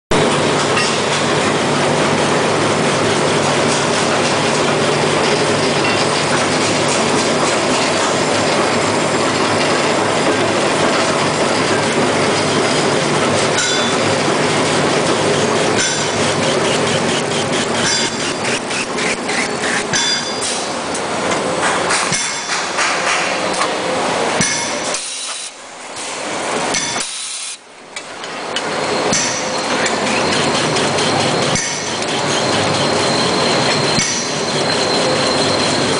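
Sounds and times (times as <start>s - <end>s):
rapid clicking from rollers: 0.2s - 23.8s, 28.0s - 35.9s
paper rewinding machine clatter: 15.0s - 19.9s.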